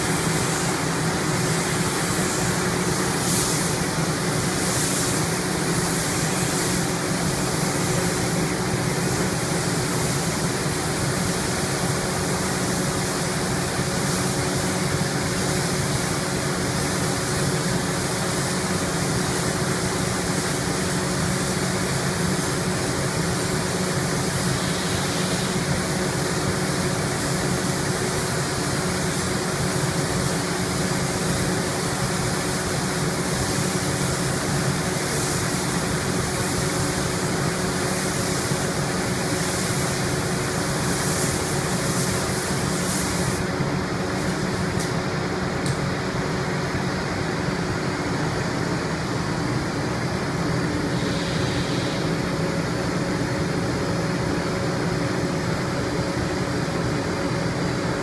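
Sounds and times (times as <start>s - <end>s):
rush of ventilation air: 0.0s - 58.0s.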